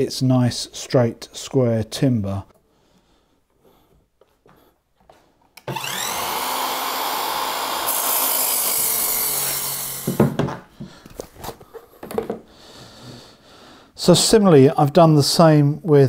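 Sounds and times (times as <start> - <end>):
mitre saw motor whine: 5.7 - 10.2
saw blade cutting timber: 5.7 - 10.3
knocks: 10.0 - 10.7.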